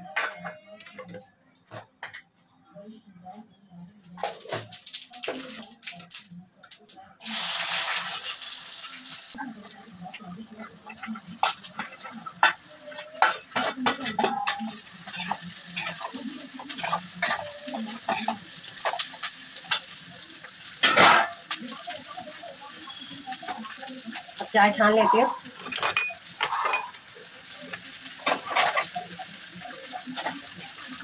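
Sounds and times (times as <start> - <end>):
low sizzle of frying: 3.8 - 31.0
ladle stirring and scraping pan: 10.6 - 19.9
metal clinks: 25.6 - 26.9.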